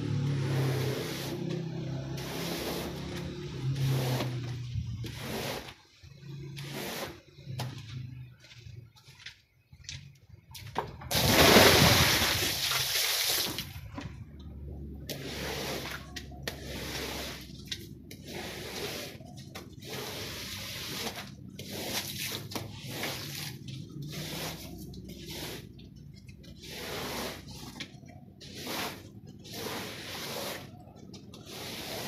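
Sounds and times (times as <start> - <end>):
brush swishing across wet rug: 0.1 - 9.2, 14.9 - 32.0
rush of water: 11.1 - 13.7.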